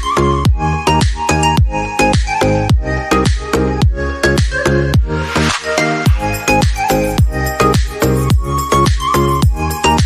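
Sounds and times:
kick drum beat: 0.0s - 5.1s, 6.1s - 9.6s
synth chords: 3.8s - 10.0s.

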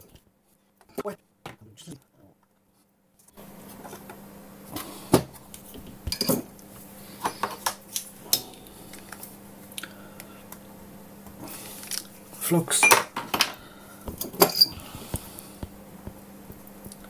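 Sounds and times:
low steady hum: 3.2s - 17.0s
metal tools clinking: 14.2s - 14.8s.

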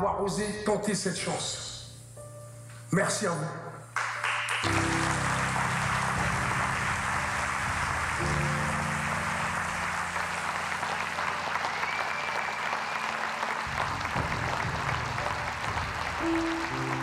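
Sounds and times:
background music: 0.0s - 17.0s
audience applauding: 4.0s - 17.0s.

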